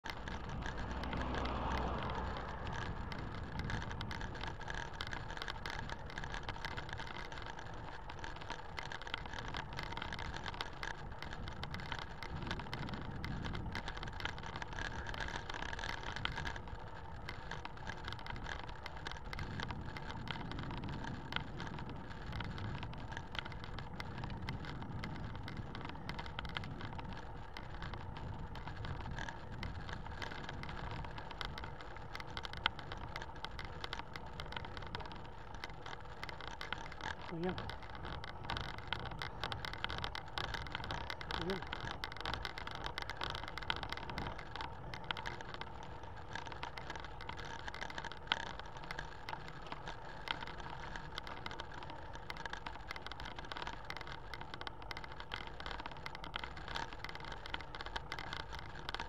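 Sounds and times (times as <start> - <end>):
low rumbling: 0.0 - 4.5
bicycle riding on asphalt: 0.0 - 59.0
small rattles and ticks: 0.0 - 59.0.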